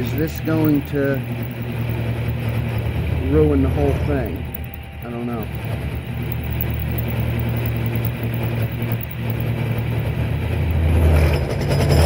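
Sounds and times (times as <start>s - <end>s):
milling machine cutting steel: 0.0s - 12.0s.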